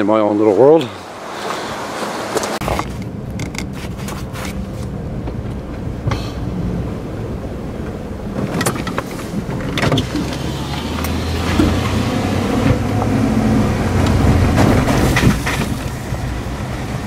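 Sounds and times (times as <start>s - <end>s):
truck engine and tyres rumbling: 0.0s - 17.0s
knocks and rattles: 14.0s - 16.2s.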